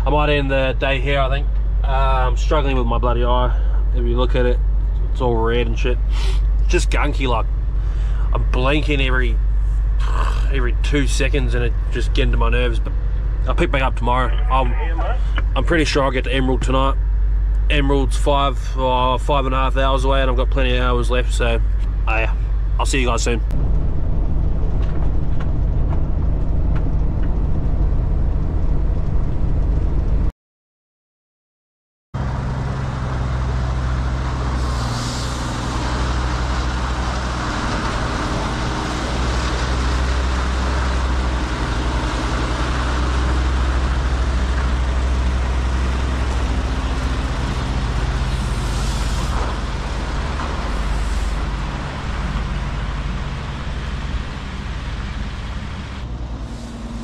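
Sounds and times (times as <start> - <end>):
truck diesel engine droning: 0.0 - 30.3, 32.2 - 57.0
road train driving past: 32.2 - 57.0.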